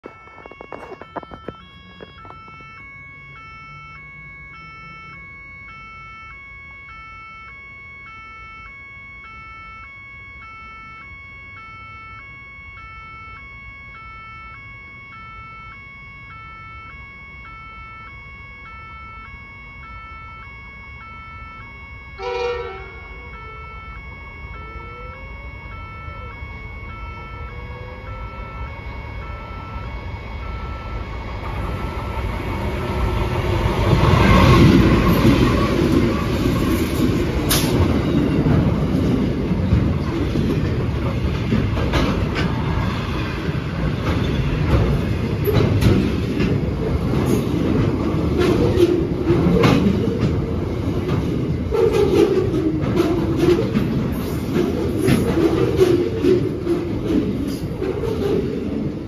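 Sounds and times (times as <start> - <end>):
train rumble: 0.0 - 5.3, 17.0 - 59.0
level crossing warning alarm: 0.0 - 59.0
locomotive horn blast: 22.1 - 28.9, 32.8 - 39.0.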